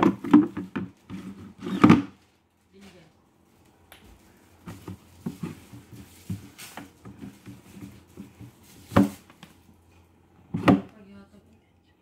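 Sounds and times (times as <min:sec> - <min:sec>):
cloth rubbing inside plastic bucket: 0:04.3 - 0:09.4.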